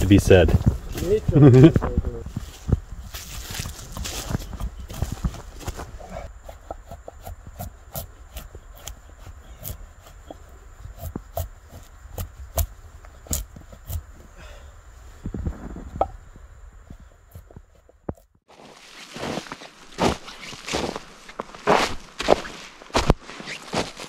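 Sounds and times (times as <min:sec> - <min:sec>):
knife cutting strokes into wood: 0:06.4 - 0:10.2, 0:10.8 - 0:14.1.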